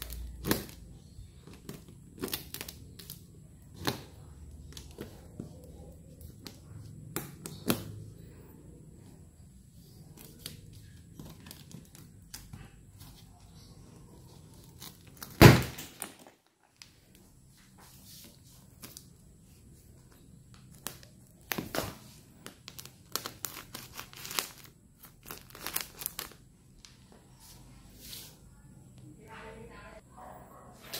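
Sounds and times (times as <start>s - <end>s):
plastic wrap crinkling: 0.0s - 4.1s, 20.5s - 27.0s.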